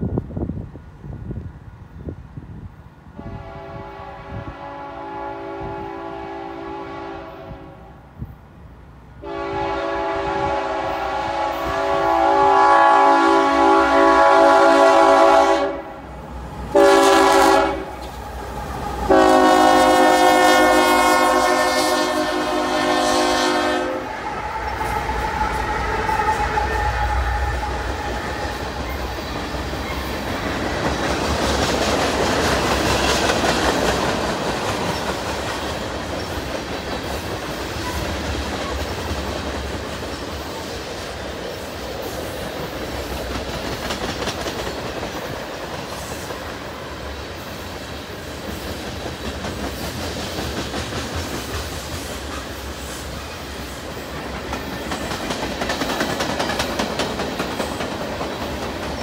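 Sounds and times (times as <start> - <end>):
freight train rumbling past: 0.0 - 59.0
wheels clicking over rail joints: 54.1 - 59.0.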